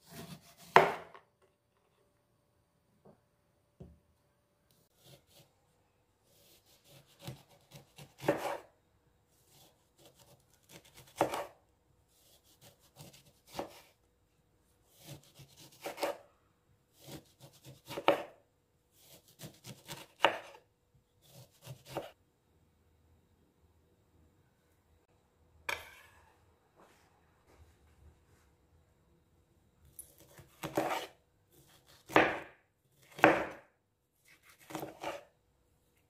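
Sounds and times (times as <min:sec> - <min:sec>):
knife cutting on cutting board: 0:00.0 - 0:01.2, 0:04.9 - 0:05.5, 0:06.3 - 0:08.7, 0:09.5 - 0:11.6, 0:12.2 - 0:13.9, 0:14.9 - 0:16.2, 0:17.0 - 0:18.4, 0:19.0 - 0:20.6, 0:21.2 - 0:22.2, 0:30.0 - 0:33.6, 0:34.2 - 0:35.3.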